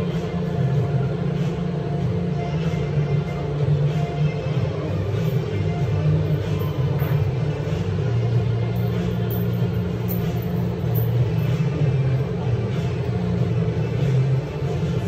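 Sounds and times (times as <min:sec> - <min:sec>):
background music with deep bass: 0:00.0 - 0:15.0.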